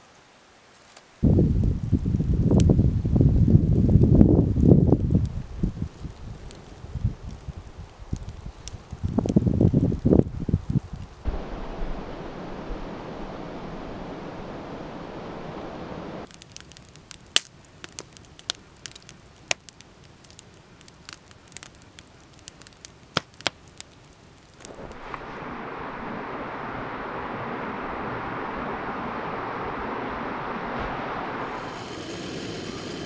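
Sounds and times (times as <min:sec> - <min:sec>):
wood fire crackling: 0:00.0 - 0:13.0, 0:16.2 - 0:33.0
steady rushing noise: 0:11.2 - 0:16.3, 0:24.6 - 0:33.0
sharp pops: 0:16.2 - 0:25.4.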